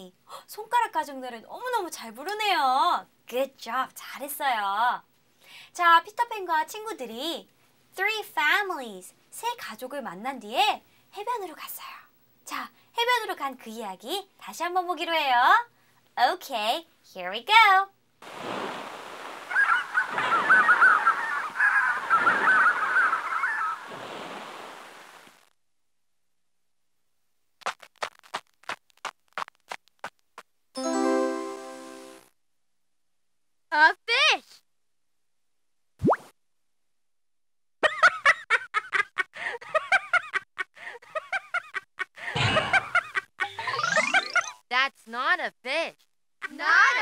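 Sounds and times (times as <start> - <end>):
surf washing in: 18.2 - 25.3
seagulls calling: 19.5 - 24.0
cartoon characters giggling: 19.6 - 23.7, 37.8 - 44.6.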